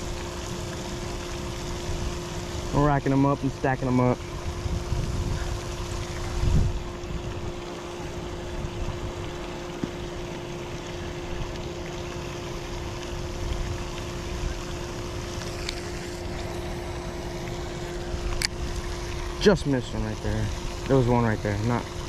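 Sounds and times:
electric hum: 0.0s - 22.0s
wind buffeting microphone: 4.4s - 7.6s.

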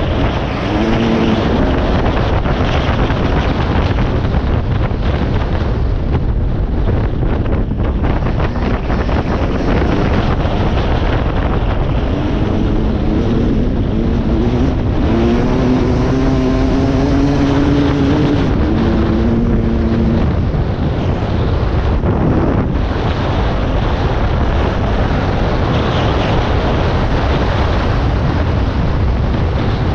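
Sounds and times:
dirt bike engine revving: 0.0s - 3.9s, 8.1s - 20.6s
wind buffeting microphone: 0.0s - 29.9s.

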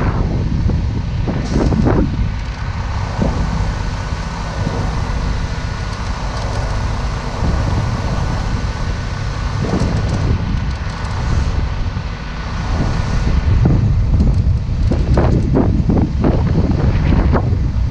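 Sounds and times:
diesel truck engine running: 0.0s - 17.9s
wind buffeting microphone: 0.0s - 17.9s.

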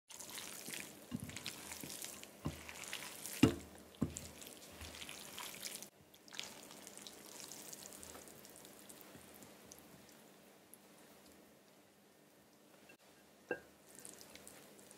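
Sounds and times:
wet pasta squishing and slapping: 0.1s - 10.2s, 13.9s - 14.9s.

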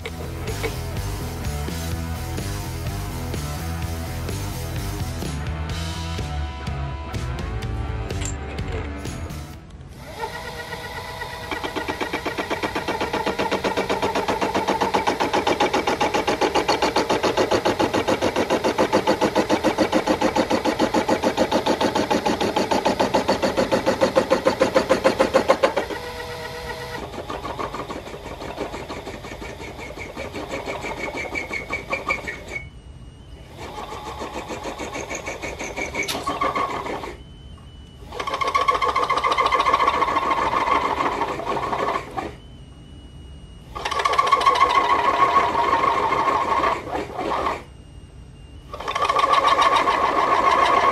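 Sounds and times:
lathe motor whirring: 9.6s - 50.9s.

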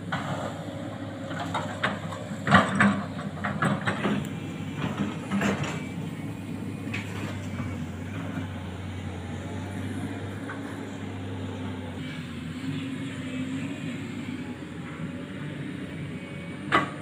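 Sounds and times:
excavator diesel engine running: 0.0s - 17.0s
metal knocks and clanks: 1.3s - 6.0s.

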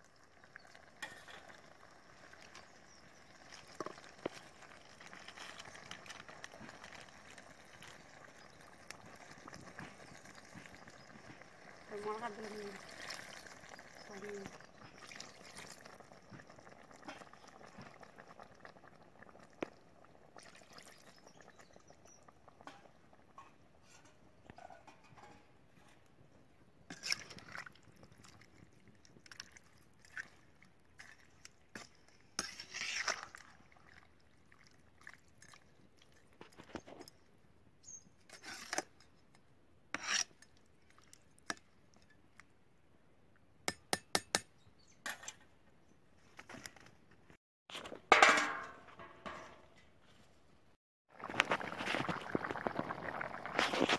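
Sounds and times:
water pouring into a pan: 0.0s - 23.1s, 51.1s - 53.9s.

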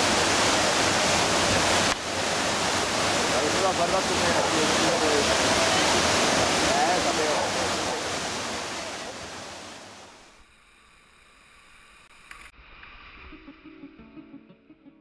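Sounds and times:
whitewater rapids rushing: 0.0s - 10.4s
plucked guitar music: 13.4s - 15.0s.

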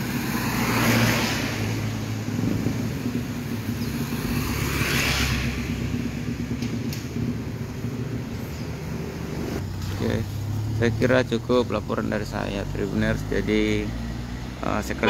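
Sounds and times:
tyres hissing on wet road: 0.0s - 3.0s
cars and motorbikes passing: 0.0s - 15.0s.

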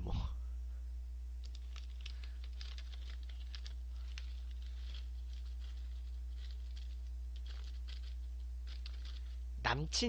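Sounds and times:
low electrical hum: 0.0s - 10.0s
plastic snack bag rustling: 1.4s - 9.4s.

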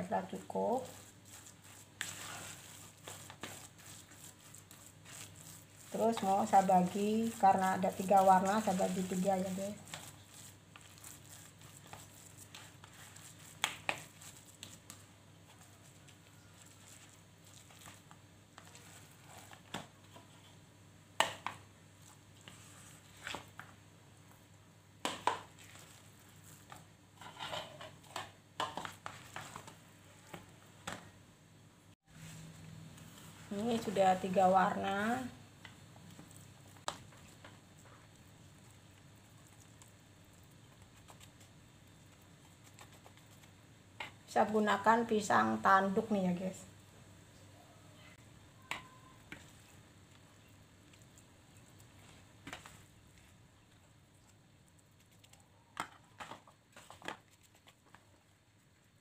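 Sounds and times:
spoon scraping plastic bowl: 0.2s - 20.6s.

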